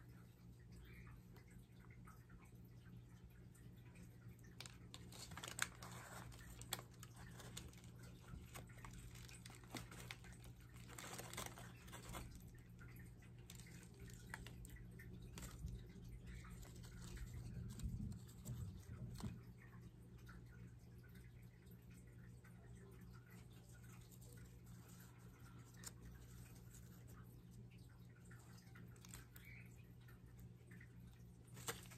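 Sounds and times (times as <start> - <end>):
light clicks and taps: 0.7 - 31.9
paper wrapping rustling: 4.6 - 12.6, 13.4 - 19.4, 31.5 - 31.9.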